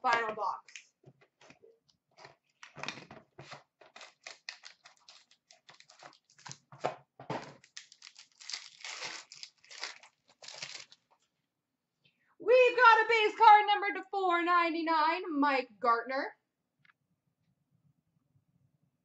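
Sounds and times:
cardboard and packaging tearing: 3.8s - 6.7s, 7.6s - 11.0s.

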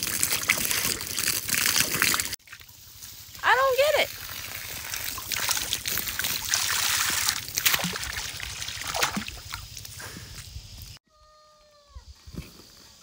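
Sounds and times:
hose water splashing into bucket: 0.0s - 10.1s.

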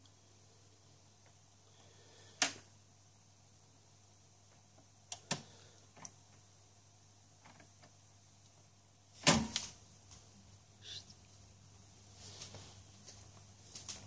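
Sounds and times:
vinyl crackle: 7.4s - 14.0s.

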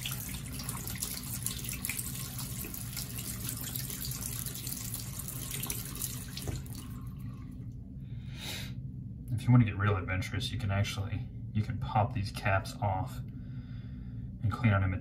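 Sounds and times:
water running into sink basin: 0.0s - 7.7s.

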